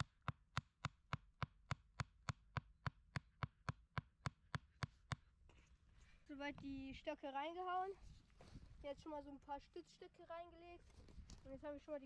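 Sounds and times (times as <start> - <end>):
wooden stake being driven into ground: 0.0 - 5.3.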